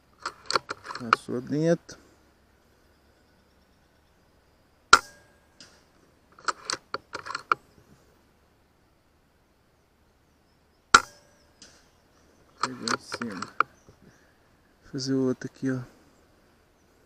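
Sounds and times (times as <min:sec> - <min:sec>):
metallic clicks of rifle action: 0:00.2 - 0:01.3, 0:04.9 - 0:07.7, 0:10.9 - 0:14.0.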